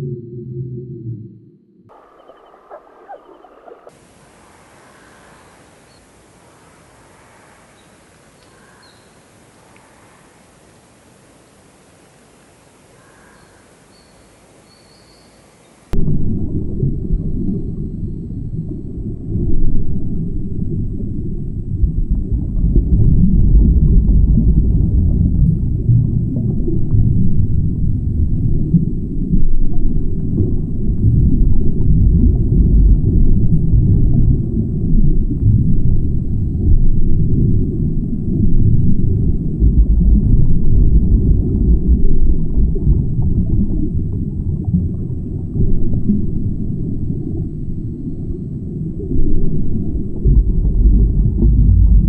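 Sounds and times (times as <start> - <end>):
underwater rumble of moving water: 0.0 - 9.2, 15.9 - 52.0
faint hiss: 1.9 - 16.0.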